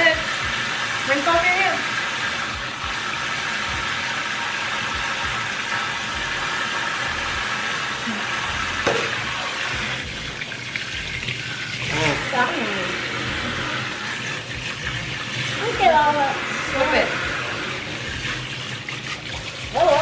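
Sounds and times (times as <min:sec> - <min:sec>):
faucet water running: 0:00.0 - 0:20.0.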